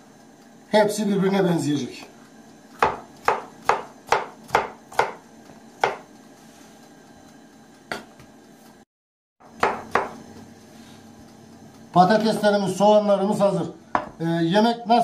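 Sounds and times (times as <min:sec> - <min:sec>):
knife chopping on cutting board: 0:02.7 - 0:06.1, 0:09.4 - 0:10.2.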